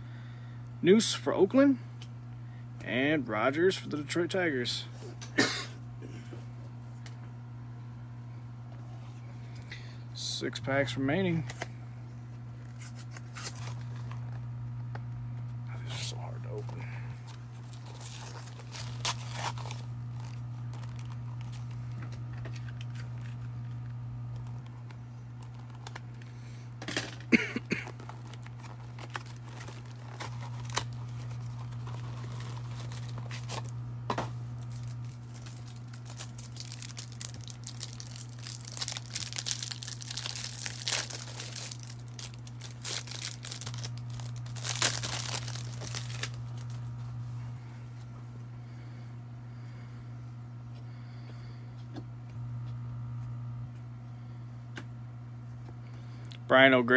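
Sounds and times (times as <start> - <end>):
steady low hum: 0.0 - 56.9
foil wrapper tearing and crinkling: 12.6 - 14.4, 17.3 - 26.2, 26.9 - 33.8, 34.5 - 46.9.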